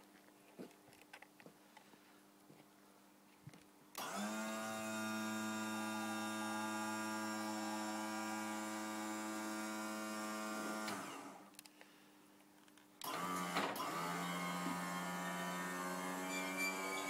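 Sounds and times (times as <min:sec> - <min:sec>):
hydraulic pump motor humming: 0:04.0 - 0:11.4, 0:13.0 - 0:17.0.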